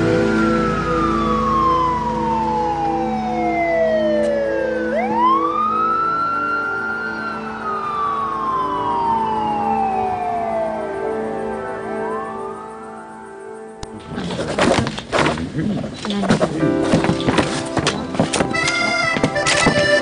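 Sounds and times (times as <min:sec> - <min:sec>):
ambulance siren wailing: 0:00.0 - 0:13.8, 0:17.0 - 0:20.0.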